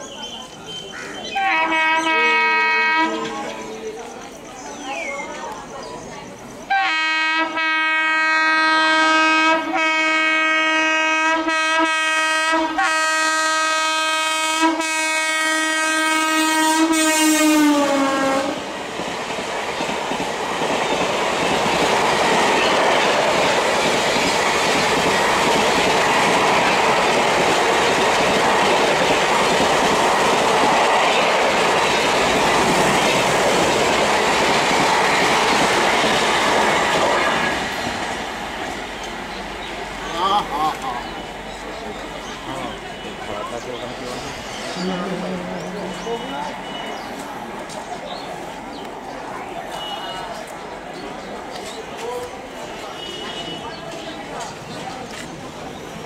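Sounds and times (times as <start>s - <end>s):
train coaches clickety-clack: 0.0s - 56.0s
locomotive horn blast: 1.3s - 3.5s, 6.7s - 18.6s, 49.7s - 50.5s, 52.6s - 54.2s.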